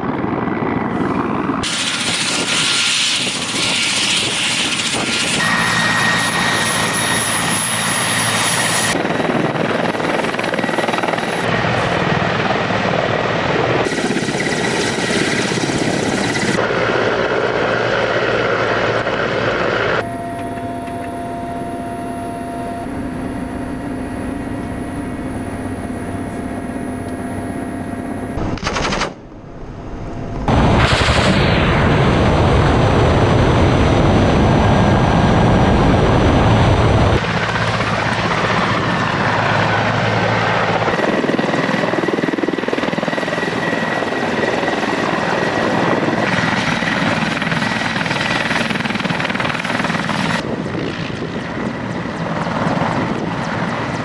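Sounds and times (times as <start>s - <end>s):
helicopter engines and rotors: 0.0s - 54.0s
engine whine inside cockpit: 0.9s - 12.0s, 15.8s - 28.4s, 29.2s - 46.2s.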